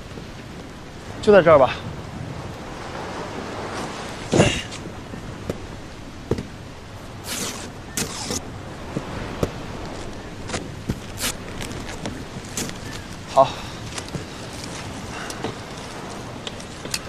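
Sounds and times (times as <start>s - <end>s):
low steady hiss: 0.0s - 17.0s
cardboard rustling: 9.9s - 17.0s.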